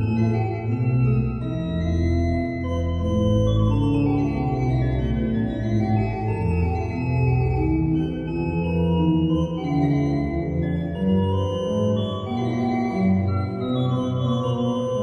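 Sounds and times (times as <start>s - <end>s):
pipe organ chords: 0.0s - 15.0s.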